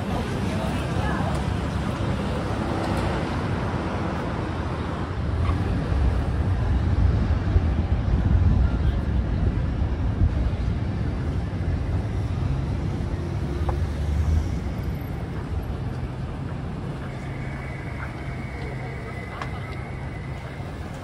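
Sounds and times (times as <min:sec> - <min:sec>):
low rumble of traffic: 0:00.0 - 0:21.0.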